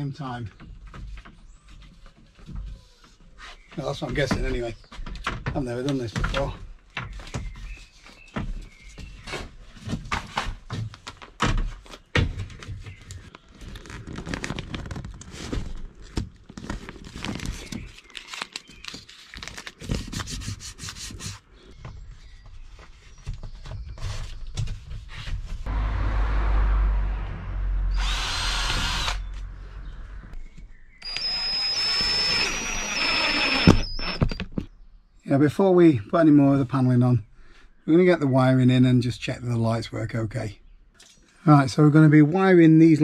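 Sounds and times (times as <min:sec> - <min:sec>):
cordless drill running: 0:27.9 - 0:29.4, 0:31.0 - 0:34.4.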